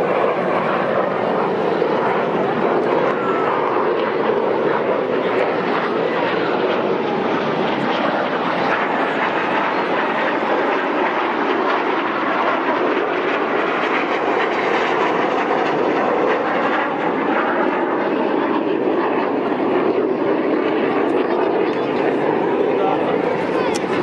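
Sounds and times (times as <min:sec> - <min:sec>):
jet engines rushing: 0:00.0 - 0:24.0.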